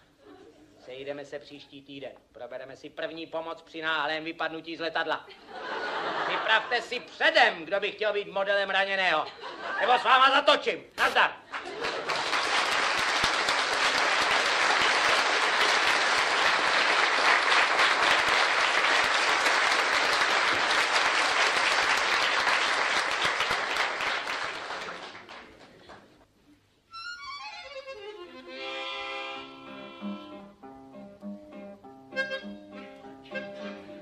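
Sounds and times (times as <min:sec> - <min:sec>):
audience applauding: 0:11.6 - 0:26.1
instrumental music: 0:26.9 - 0:34.0.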